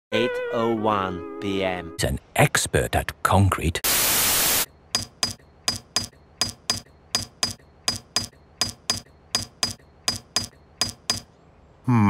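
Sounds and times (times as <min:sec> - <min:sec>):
tool tapping concrete block: 0:05.0 - 0:11.3.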